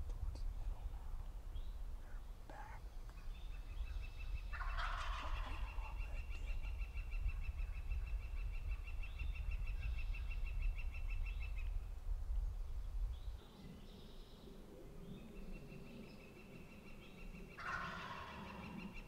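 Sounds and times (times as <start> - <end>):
turkey gobbling: 4.5 - 6.1, 17.6 - 18.9.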